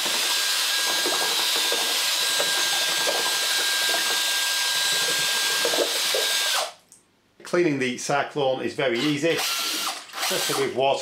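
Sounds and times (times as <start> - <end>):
mixer stirring paint: 0.0 - 6.7
electric drill whining: 0.0 - 6.8, 9.0 - 10.7.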